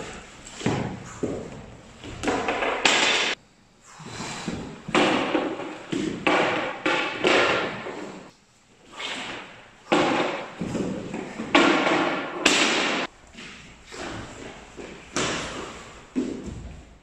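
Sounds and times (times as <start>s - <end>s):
people grappling on wooden floor: 0.0s - 3.3s, 8.9s - 17.0s.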